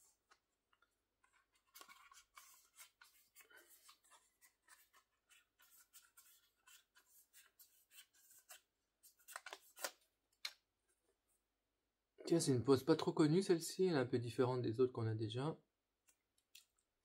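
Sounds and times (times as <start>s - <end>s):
photo cards rustling and scraping: 0.0s - 11.0s.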